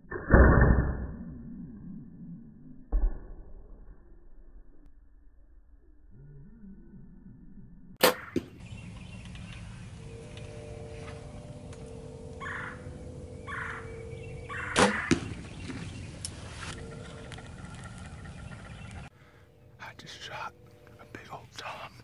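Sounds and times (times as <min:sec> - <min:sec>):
faint steady hum: 0:08.7 - 0:14.5.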